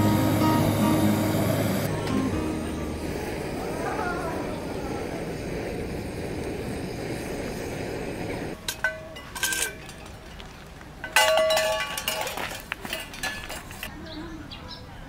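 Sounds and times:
gas torch burner rushing: 0:00.0 - 0:08.6
metal cups clinking: 0:08.5 - 0:13.9.

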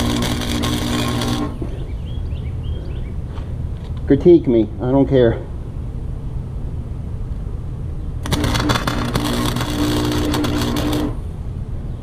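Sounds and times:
welding arc crackling: 0:00.0 - 0:01.7, 0:08.2 - 0:11.3
steady electrical buzz: 0:00.0 - 0:02.3, 0:03.1 - 0:12.0.

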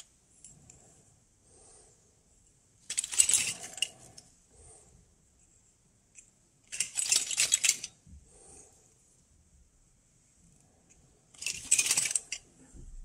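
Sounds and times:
metal tubes clinking together: 0:02.9 - 0:04.2, 0:06.6 - 0:08.0, 0:11.3 - 0:12.5.

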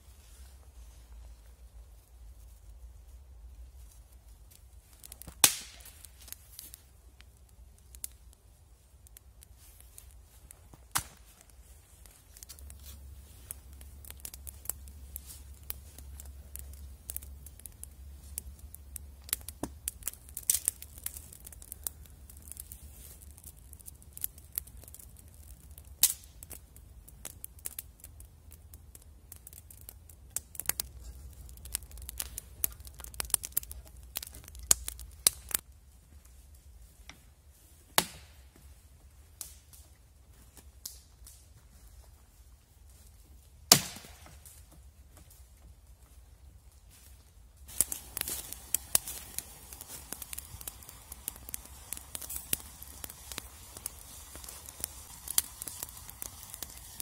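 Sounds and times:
campfire crackling and popping: 0:01.7 - 0:57.0
loud crack of fire: 0:03.8 - 0:35.7, 0:37.7 - 0:39.9, 0:40.5 - 0:41.5, 0:43.0 - 0:45.6, 0:46.6 - 0:57.0.

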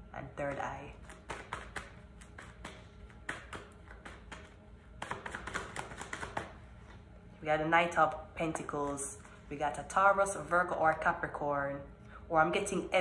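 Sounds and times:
cards being shuffled by hand: 0:01.0 - 0:06.6.

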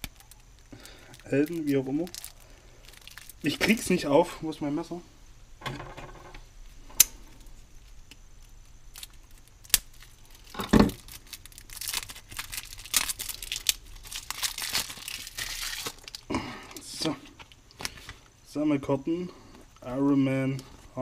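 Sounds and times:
plastic film tearing and crinkling: 0:00.0 - 0:03.9, 0:07.8 - 0:16.3.

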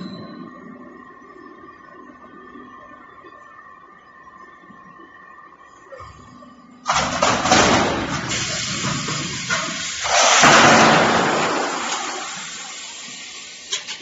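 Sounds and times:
metal sheets dropping onto pile: 0:06.9 - 0:12.7.

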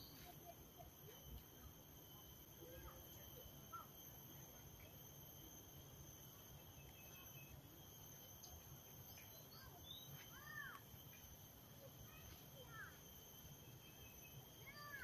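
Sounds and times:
steady high whine: 0:00.0 - 0:15.0
faint bird chirps: 0:08.4 - 0:15.0.

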